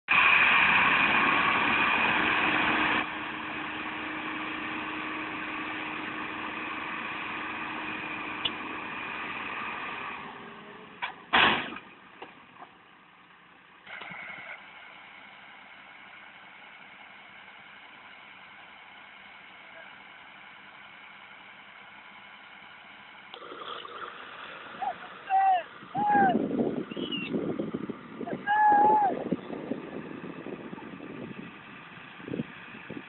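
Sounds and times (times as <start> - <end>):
diesel engines under load: 0.1 - 33.0
loud thump: 11.3 - 11.9.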